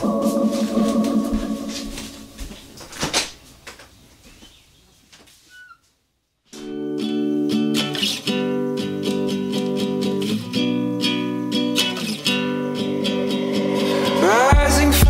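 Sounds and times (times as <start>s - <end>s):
acoustic guitar song strumming: 6.6s - 15.0s.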